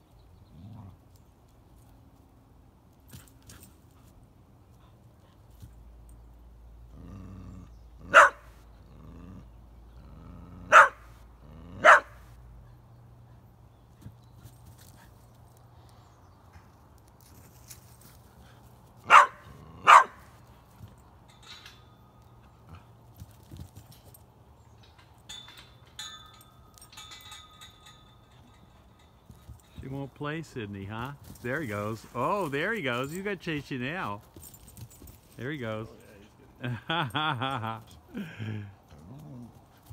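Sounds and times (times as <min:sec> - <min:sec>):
dog growling: 0:06.9 - 0:08.2, 0:08.8 - 0:10.7, 0:11.4 - 0:11.9, 0:38.9 - 0:39.6
dog barking: 0:08.1 - 0:08.5, 0:10.7 - 0:11.1, 0:11.8 - 0:12.2, 0:19.1 - 0:20.2
animal footfalls on dirt and straw: 0:14.0 - 0:19.1.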